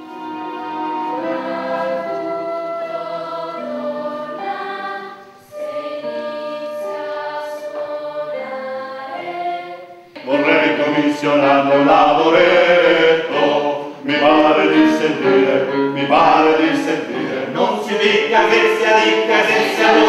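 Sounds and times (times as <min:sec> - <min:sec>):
choir singing held chords: 0:00.0 - 0:20.0
man singing: 0:10.2 - 0:20.0.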